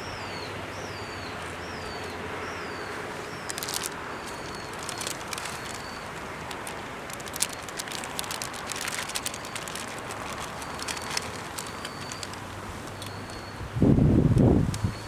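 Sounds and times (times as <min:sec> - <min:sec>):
steady outdoor hiss: 0:00.0 - 0:15.0
light clicks and rustles: 0:03.3 - 0:13.4.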